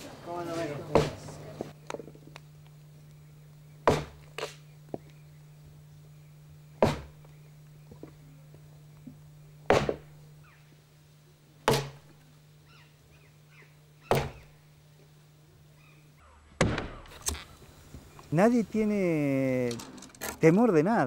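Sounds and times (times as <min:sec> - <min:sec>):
faint low hum: 0:00.0 - 0:21.0
axe chopping wood: 0:00.9 - 0:01.2, 0:03.8 - 0:04.5, 0:06.8 - 0:07.2, 0:09.7 - 0:10.1, 0:11.6 - 0:12.1, 0:14.1 - 0:14.5, 0:16.6 - 0:17.0.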